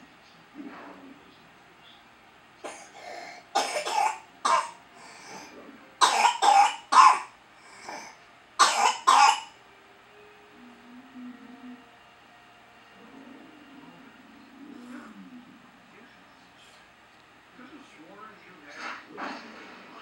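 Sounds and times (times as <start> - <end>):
child coughing: 2.6 - 4.8, 6.0 - 7.3, 8.6 - 9.5.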